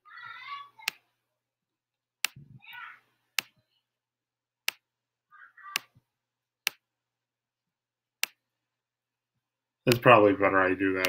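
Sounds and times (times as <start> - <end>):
pen clicks on digital whiteboard: 0.8 - 1.1, 2.2 - 2.4, 3.3 - 3.6, 4.6 - 4.9, 5.7 - 6.0, 6.6 - 6.9, 8.2 - 8.4.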